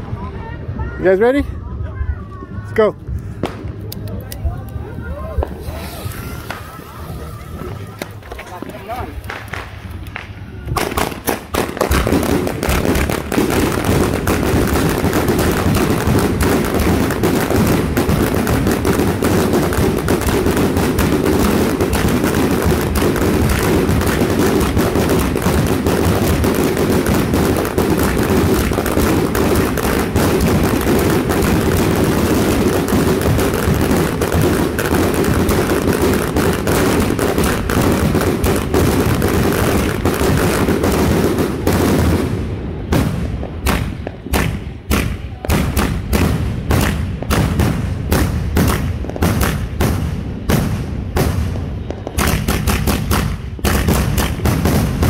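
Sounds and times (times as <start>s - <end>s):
fireworks barrage: 3.0s - 55.0s
sharp firework bangs: 7.9s - 55.0s.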